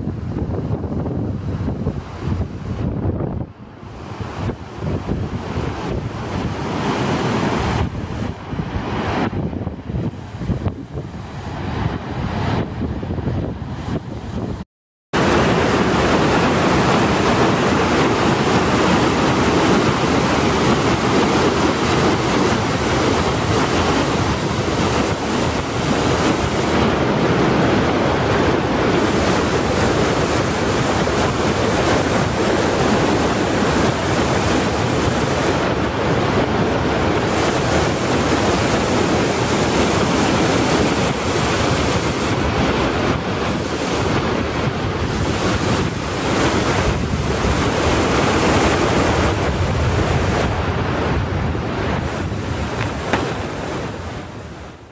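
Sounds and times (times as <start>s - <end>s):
whitewater rushing over rocks: 15.2s - 50.4s, 52.0s - 54.7s.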